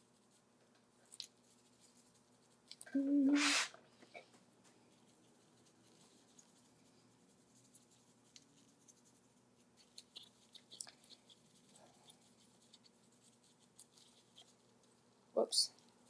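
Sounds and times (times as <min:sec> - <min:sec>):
paintbrush dabbing: 0:01.4 - 0:03.8, 0:04.9 - 0:15.2.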